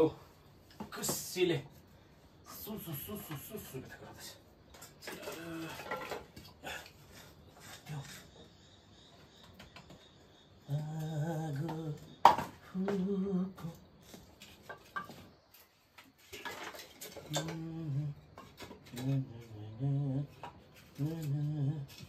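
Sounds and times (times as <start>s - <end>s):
man humming: 10.7s - 12.1s, 12.7s - 13.8s, 17.3s - 18.2s, 19.0s - 22.0s.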